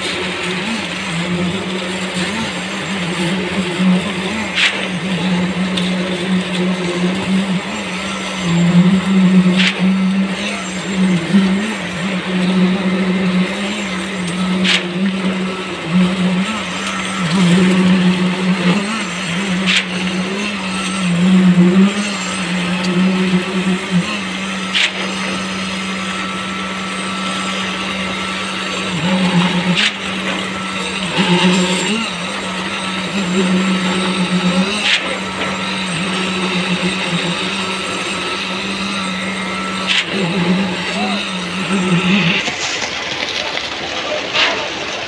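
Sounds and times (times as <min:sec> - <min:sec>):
concrete poker vibrator humming: 0:00.0 - 0:45.0.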